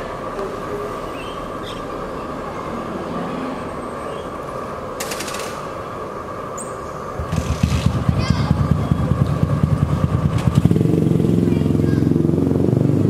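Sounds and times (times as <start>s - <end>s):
low outdoor rumble: 0.0s - 13.0s
crackling rattle: 5.0s - 5.8s.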